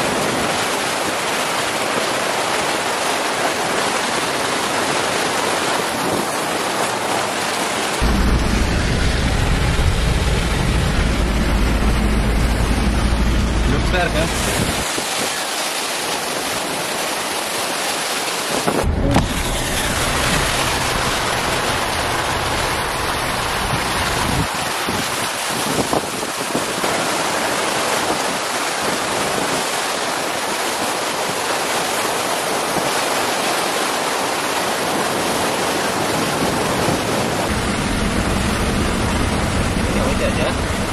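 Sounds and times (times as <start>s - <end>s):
floodwater rushing: 0.0s - 40.9s
water spraying from wheels: 0.0s - 40.9s
vehicle engine rumble: 8.0s - 14.9s, 18.6s - 24.7s, 37.4s - 40.9s
wind on microphone: 8.0s - 15.4s, 18.4s - 29.8s.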